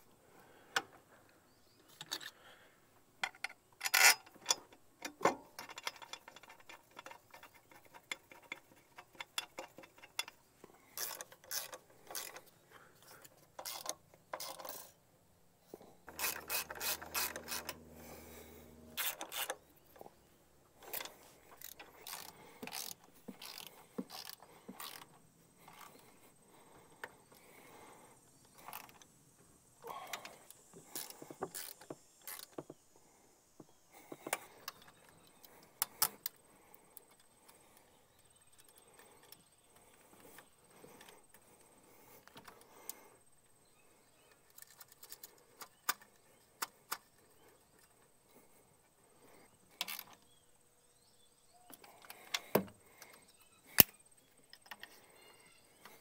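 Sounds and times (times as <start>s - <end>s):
parts knocking and rattling: 3.2s - 15.0s, 15.7s - 20.2s, 20.8s - 27.2s
ratchet wrench clicking: 11.0s - 12.5s, 13.6s - 14.9s, 16.1s - 18.0s, 19.0s - 19.6s, 20.9s - 25.1s, 30.9s - 32.5s
low hum: 15.9s - 20.6s.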